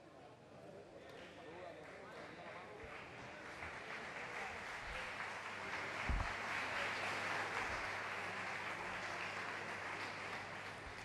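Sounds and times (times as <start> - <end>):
crowd cheering and clapping: 2.9 - 11.0.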